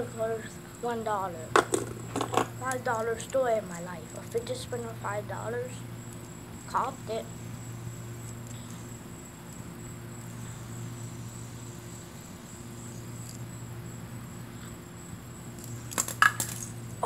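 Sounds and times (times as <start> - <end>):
steady low hum: 0.0 - 17.0
fidget spinner clattering when dropped: 1.5 - 2.8, 15.6 - 16.8.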